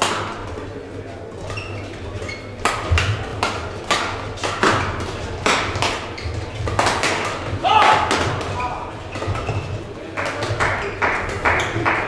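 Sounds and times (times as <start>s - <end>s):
racket hitting shuttlecock: 0.0s - 0.5s, 2.4s - 12.0s
shoe squeaks: 1.4s - 3.0s, 6.0s - 6.6s, 8.6s - 9.8s.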